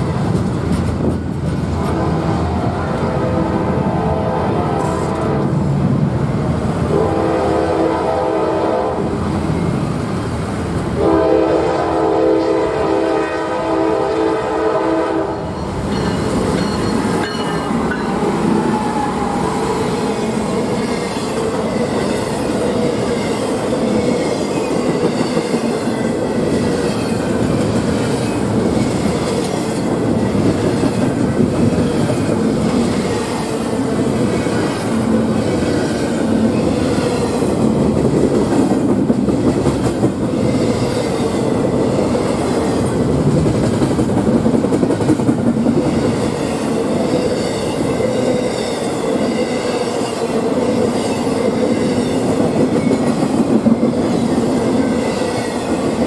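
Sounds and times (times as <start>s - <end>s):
train wheels clattering on rails: 0.0s - 2.0s, 15.4s - 56.0s
locomotive horn blasts: 1.8s - 5.6s, 6.9s - 9.1s, 11.0s - 15.6s.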